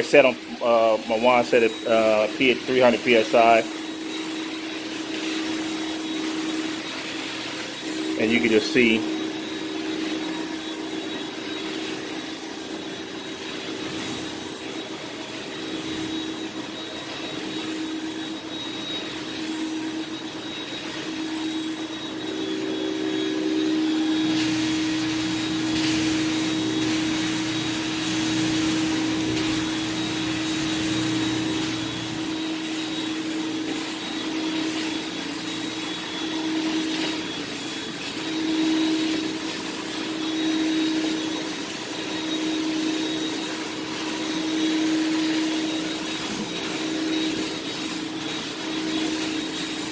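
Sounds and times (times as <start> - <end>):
vacuum motor whine: 0.0 - 49.9
spray wand hissing: 24.2 - 35.9.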